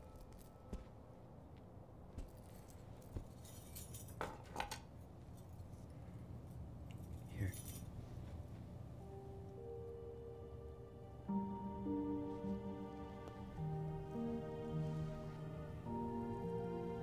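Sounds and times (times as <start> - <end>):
bangles clinking and jingling: 2.3 - 8.0
low steady hum: 4.8 - 17.0.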